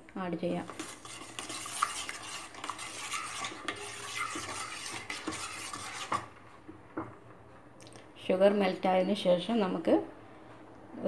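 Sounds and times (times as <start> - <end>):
metal spoon scraping a pan: 0.6 - 6.3.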